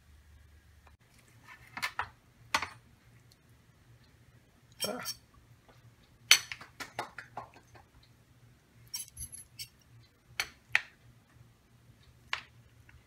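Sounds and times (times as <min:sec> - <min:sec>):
cutlery clinking on ceramic dishes: 0:04.8 - 0:05.2.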